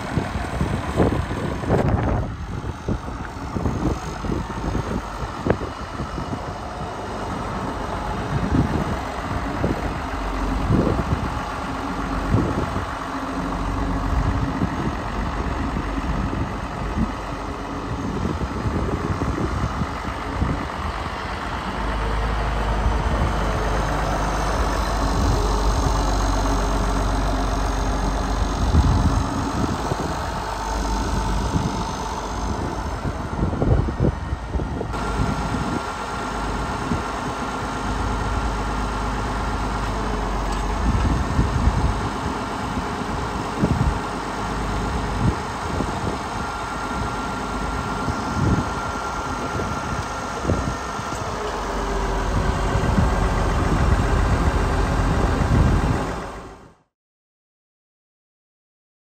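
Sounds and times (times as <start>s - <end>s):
tractor diesel engine running: 0.0s - 56.9s.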